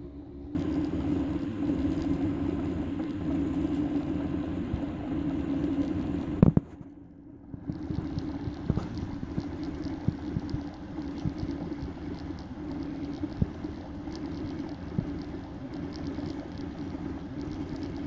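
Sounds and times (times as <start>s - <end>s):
three d printer humming: 0.0s - 6.7s, 7.6s - 18.0s.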